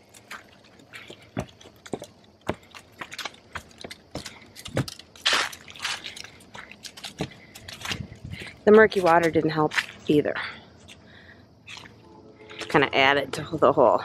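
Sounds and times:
footsteps on wooden planks: 0:00.0 - 0:10.1.

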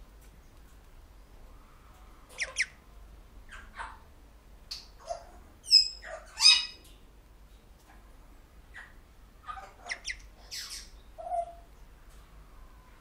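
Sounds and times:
parrots squawking and chirping: 0:02.3 - 0:02.8, 0:03.5 - 0:04.0, 0:05.0 - 0:06.8, 0:08.7 - 0:11.7.

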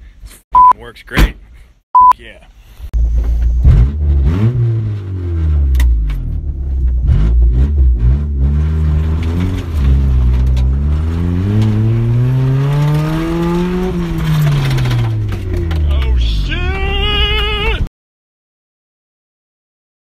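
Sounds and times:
car engine accelerating hard: 0:03.6 - 0:16.1.

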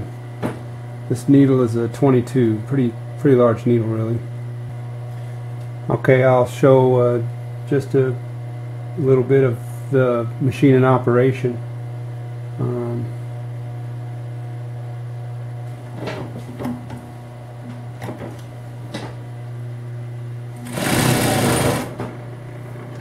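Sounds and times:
fast loud stitching: 0:20.6 - 0:22.0
sewing machine motor humming: 0:20.6 - 0:22.2.

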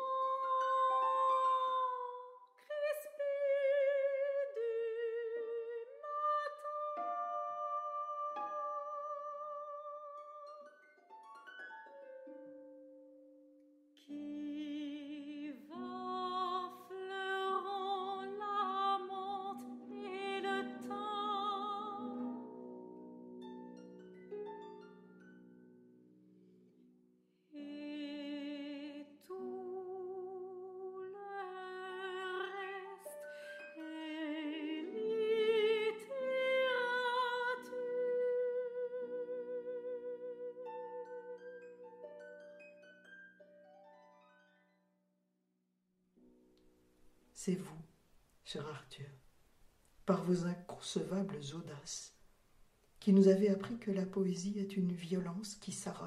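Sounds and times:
operatic soprano singing: 0:00.0 - 0:10.5, 0:14.0 - 0:22.4, 0:27.5 - 0:41.3.

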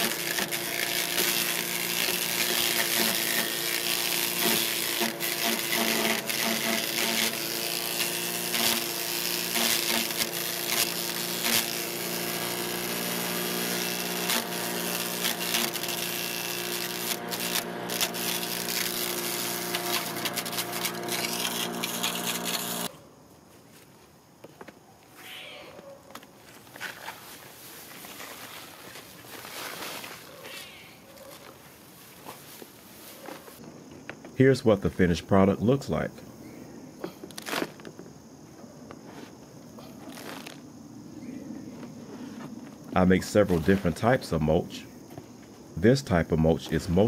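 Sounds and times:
branches cracking in chipper: 0:00.0 - 0:22.9
chipper shredder engine hum: 0:00.0 - 0:22.9.

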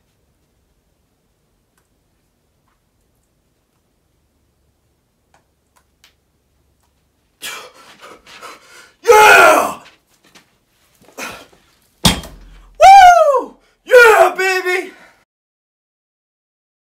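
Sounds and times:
man yelling with effort: 0:09.0 - 0:09.8, 0:12.8 - 0:15.1.

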